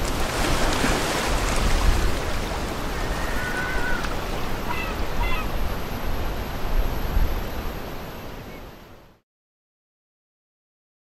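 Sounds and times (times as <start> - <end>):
wind buffeting the microphone: 0.0 - 7.8
waves lapping: 0.0 - 8.1
short bird calls: 3.0 - 5.6.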